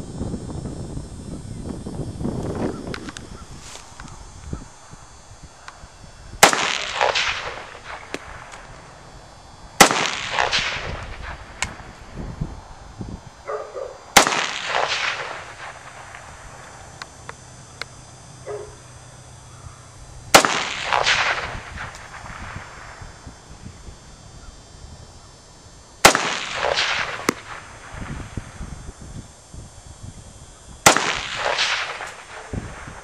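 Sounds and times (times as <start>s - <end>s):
rifle shots with echo: 6.4s - 8.7s, 9.8s - 11.9s, 13.5s - 16.5s, 20.3s - 23.0s, 26.0s - 28.0s, 30.8s - 32.9s.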